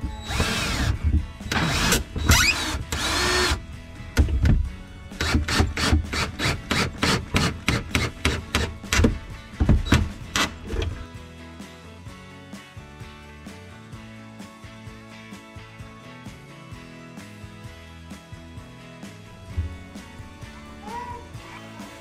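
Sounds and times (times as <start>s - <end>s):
cordless drill whining: 0.0s - 3.6s
background music with steady beat: 0.0s - 22.0s.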